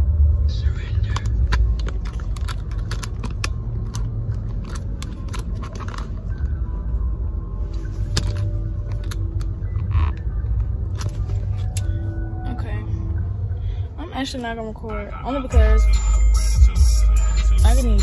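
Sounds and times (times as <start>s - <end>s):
car rumble from inside cabin: 0.0s - 18.0s
phone being handled: 1.1s - 6.5s, 8.0s - 11.8s.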